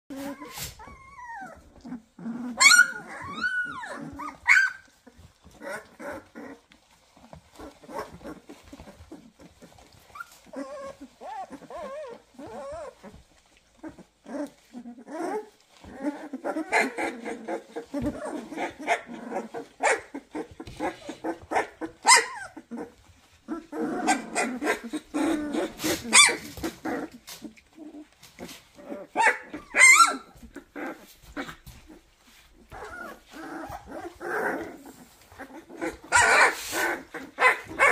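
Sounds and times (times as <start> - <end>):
puppies whining and squeaking: 0.1 - 37.9
puppies yelping: 0.3 - 28.1, 28.8 - 37.9.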